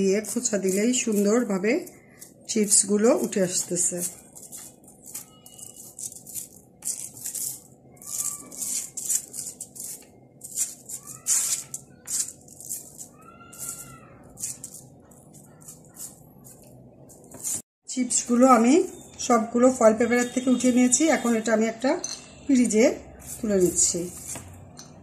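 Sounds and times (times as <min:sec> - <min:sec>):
aluminium foil crinkling: 0:00.0 - 0:17.6.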